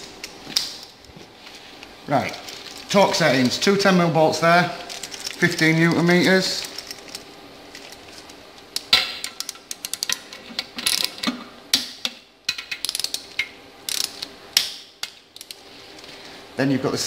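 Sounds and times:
ratchet wrench clicking: 12.8s - 13.2s, 13.9s - 14.2s.

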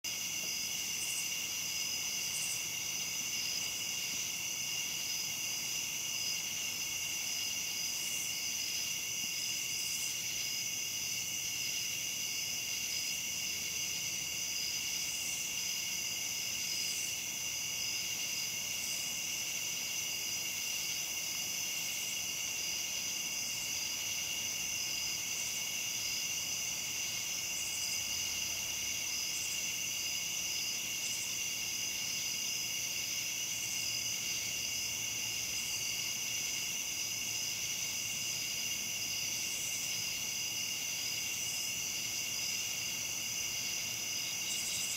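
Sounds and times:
crickets and katydids trilling: 0.0s - 44.9s
short high insect calls: 0.1s - 4.4s, 44.2s - 44.9s.

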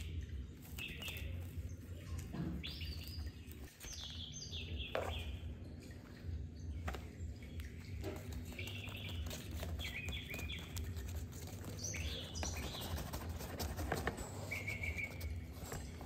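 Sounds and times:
toy rustling against fabric tunnel: 0.0s - 4.1s, 7.9s - 16.0s.

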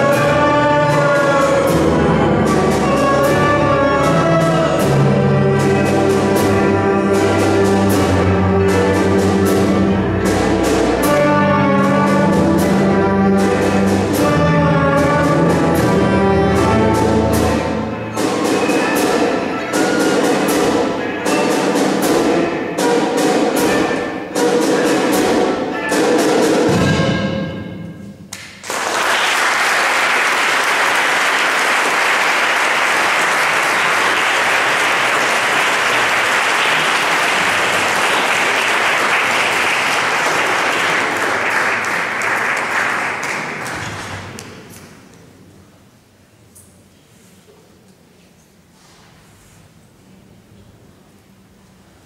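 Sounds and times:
small orchestra playing: 0.0s - 47.0s
audience applause: 28.4s - 44.7s.

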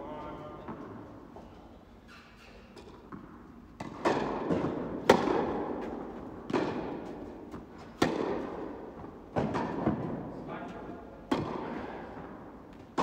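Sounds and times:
tennis ball struck by rackets: 2.8s - 10.2s, 11.3s - 11.7s
tennis ball bouncing on court: 2.8s - 10.3s, 11.3s - 13.0s.

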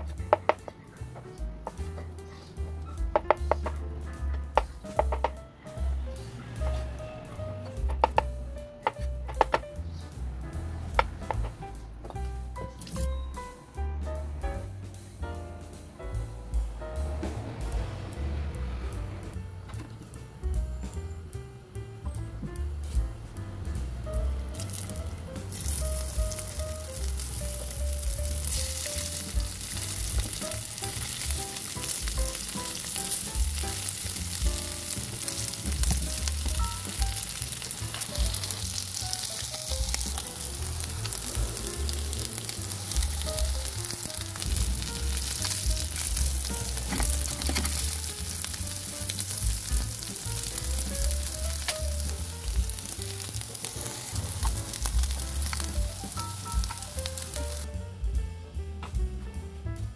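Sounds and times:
potatoes sizzling in a frying pan: 24.6s - 57.7s.

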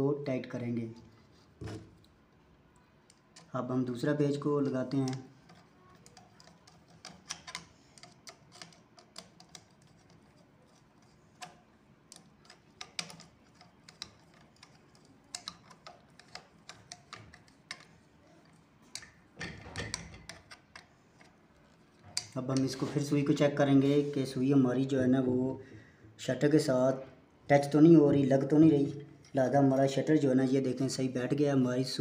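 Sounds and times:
screwdriver metal clicks: 5.0s - 9.8s, 11.4s - 17.9s.

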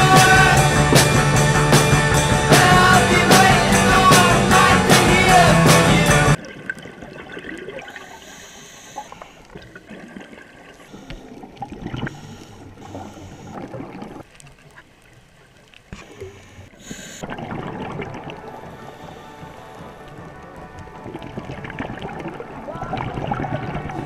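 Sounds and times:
underwater water noise: 0.0s - 24.0s
crackling clicks: 6.4s - 23.5s
bubble bursts from regulator: 17.2s - 19.7s, 21.0s - 24.0s.

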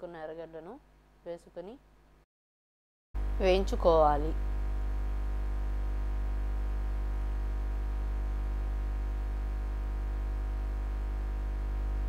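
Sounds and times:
electrical mains hum: 3.2s - 12.0s.

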